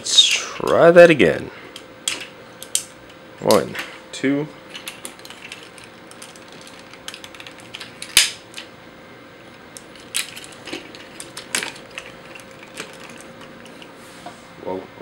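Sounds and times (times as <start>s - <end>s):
toy parts clicking and clacking: 4.8s - 8.6s, 9.8s - 13.9s.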